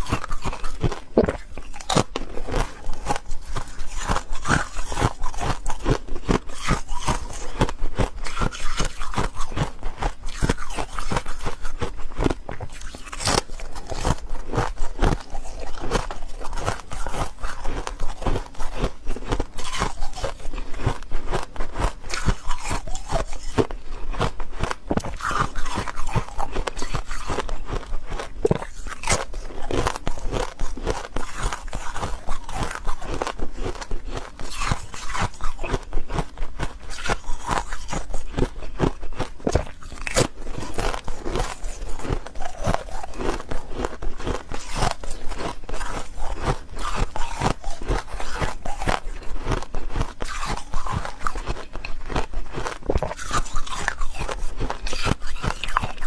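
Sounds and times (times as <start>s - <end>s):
chewing crunchy ice: 0.0s - 56.0s.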